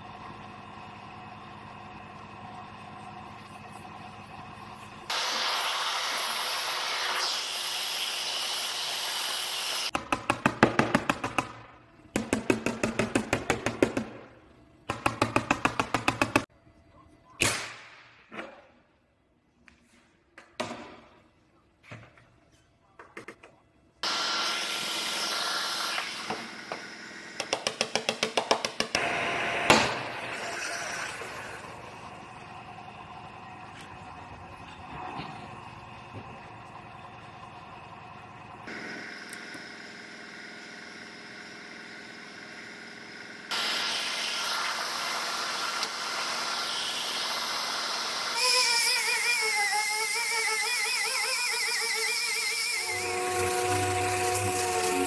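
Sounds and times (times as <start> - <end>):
heat gun blowing: 5.1 - 9.9, 24.0 - 26.8, 43.5 - 55.0
loud steady hiss: 5.1 - 9.9, 43.5 - 49.3.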